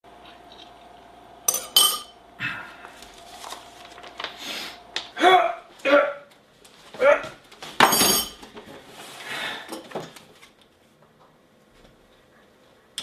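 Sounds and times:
dishes clattering: 1.5 - 2.1, 7.8 - 8.4.

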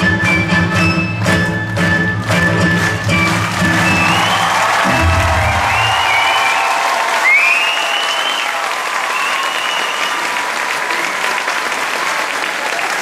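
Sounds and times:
audience applauding: 1.2 - 13.0
high gliding cries from crowd: 3.8 - 11.6.

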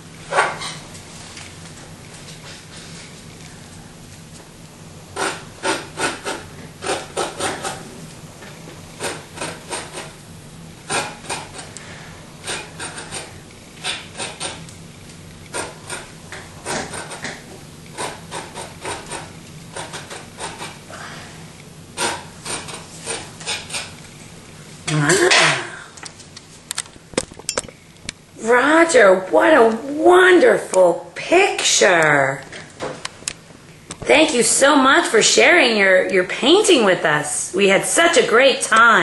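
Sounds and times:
steady low hum: 0.0 - 39.0
scratchy rubbing on canvas: 5.2 - 7.9, 9.0 - 10.2, 10.9 - 11.7, 12.4 - 14.6, 15.5 - 17.4, 18.0 - 20.8, 22.0 - 23.9.

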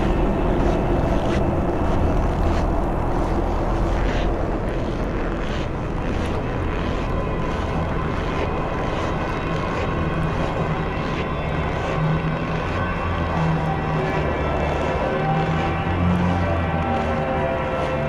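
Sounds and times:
deep rumble with held tones: 0.0 - 18.0.

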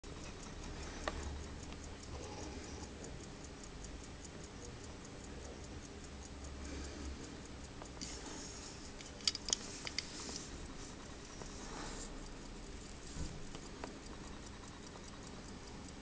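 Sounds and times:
pocket watch ticking: 0.0 - 16.0
watch handling clicks: 7.8 - 12.1.

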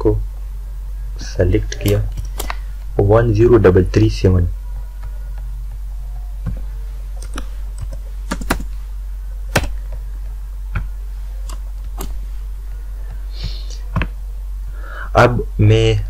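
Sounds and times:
steady low hum: 0.0 - 16.0
keyboard keystrokes: 7.2 - 8.7, 9.5 - 9.9, 11.5 - 12.2.

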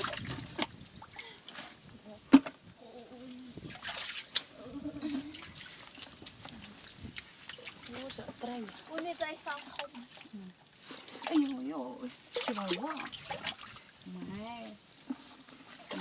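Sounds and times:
hands splashing in muddy water: 3.7 - 8.2.

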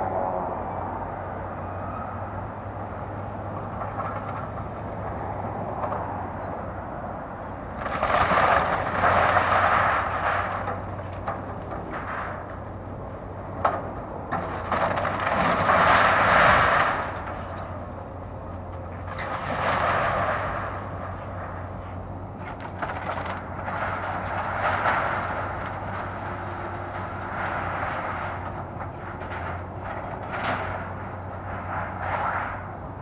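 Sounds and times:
excavator diesel engine running: 0.0 - 33.0
debris crashing: 7.7 - 12.8, 13.6 - 33.0
wood and roofing cracking: 7.8 - 12.6, 13.6 - 17.9, 22.4 - 32.6.

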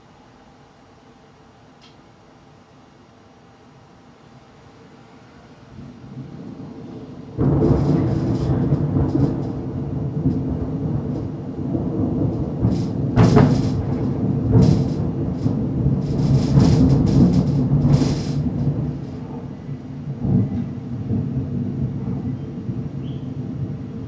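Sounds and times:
rain: 0.0 - 24.0
thunder crackles: 5.7 - 24.0
thunder rumbling: 5.7 - 24.0.

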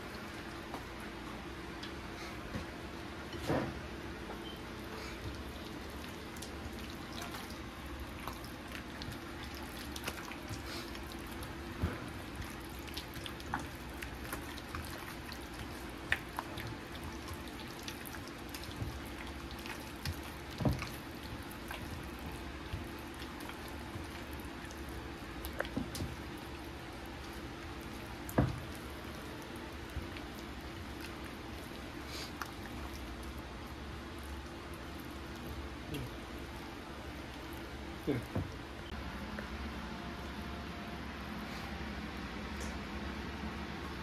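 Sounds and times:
steady low hum: 0.0 - 44.0
small wet clicks and drips: 5.1 - 39.5.

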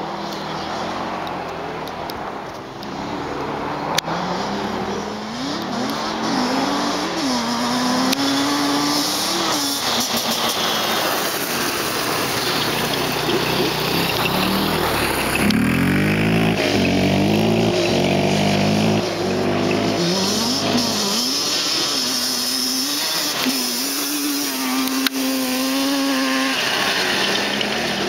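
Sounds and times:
two-stroke quad engine revving: 3.6 - 28.0.

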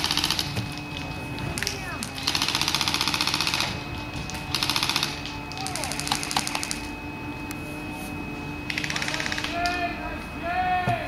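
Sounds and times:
airsoft gun firing bursts: 0.0 - 0.5, 2.2 - 3.8, 4.5 - 6.8, 8.7 - 9.8.

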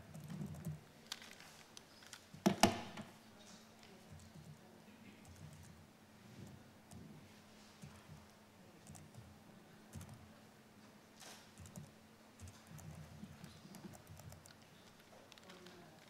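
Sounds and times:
laptop keyboard and mouse clicking: 8.8 - 9.3, 9.9 - 10.2, 11.5 - 16.0.

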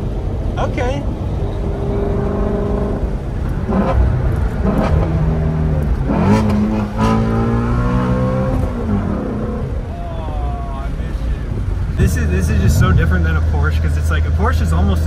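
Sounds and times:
car engine accelerating: 1.1 - 10.9.

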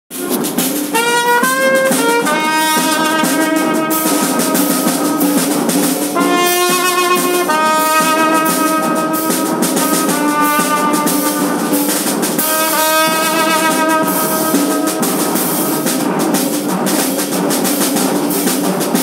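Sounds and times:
brass band holding chords: 0.1 - 19.0
steady drum beat: 0.1 - 19.0.

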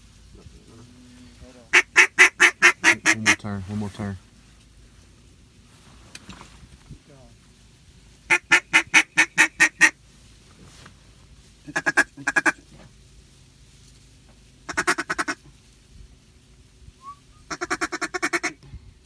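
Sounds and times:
duck call quacks: 1.7 - 3.4, 8.3 - 10.0, 11.6 - 12.6, 14.7 - 15.4, 17.0 - 18.6.

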